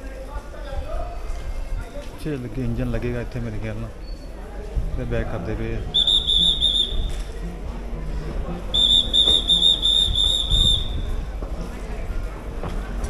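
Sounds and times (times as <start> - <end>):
low steady train rumble: 0.0 - 13.0
pea whistle trill: 5.9 - 7.2, 8.8 - 11.1.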